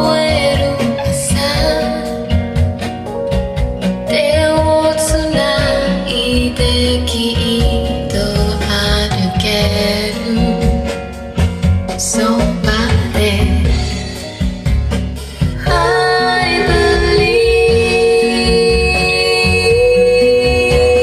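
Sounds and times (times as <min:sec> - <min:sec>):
music with singing over loudspeakers: 0:00.0 - 0:21.0.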